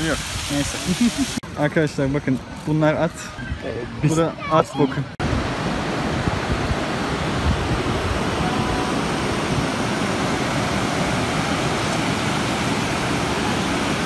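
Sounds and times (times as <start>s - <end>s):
river water rushing over rocks: 5.2s - 14.0s.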